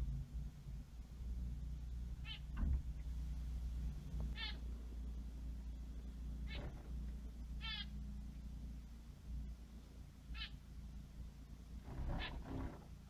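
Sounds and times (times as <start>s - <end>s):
steady low hum: 0.0s - 13.0s
finch calling: 2.2s - 2.5s, 4.3s - 4.6s, 6.4s - 6.9s, 7.6s - 7.9s, 12.0s - 12.8s.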